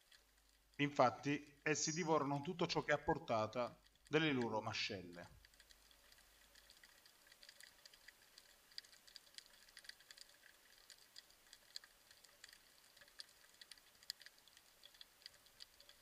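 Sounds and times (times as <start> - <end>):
underwater clicks and crackles: 0.0 - 16.0
faint hiss: 0.8 - 5.4.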